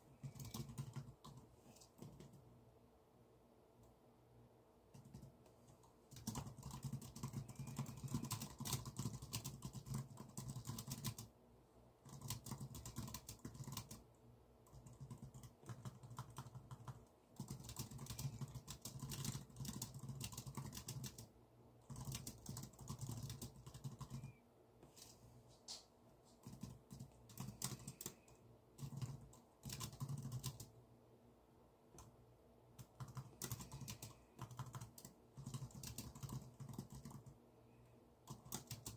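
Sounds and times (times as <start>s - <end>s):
computer keyboard typing: 0.0s - 2.4s, 4.9s - 11.3s, 12.0s - 24.4s, 26.4s - 30.8s, 32.8s - 37.4s, 38.2s - 38.9s.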